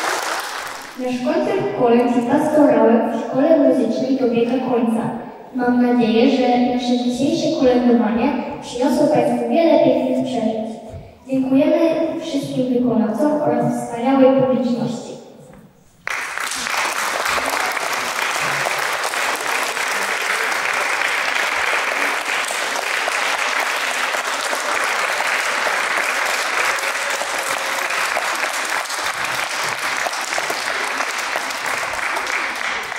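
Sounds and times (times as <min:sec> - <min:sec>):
audience applauding: 0:00.0 - 0:01.0, 0:16.0 - 0:32.9.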